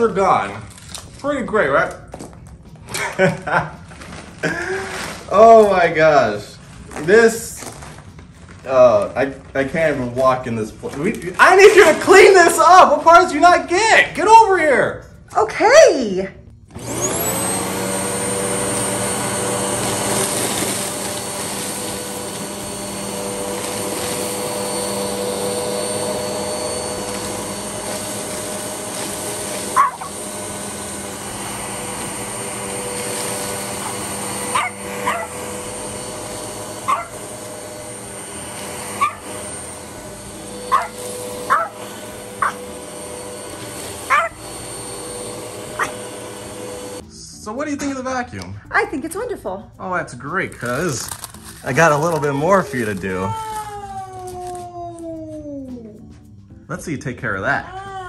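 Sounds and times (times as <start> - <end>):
vacuum cleaner motor whine: 3.2 - 6.2, 8.7 - 13.6, 16.7 - 47.1, 50.6 - 54.6.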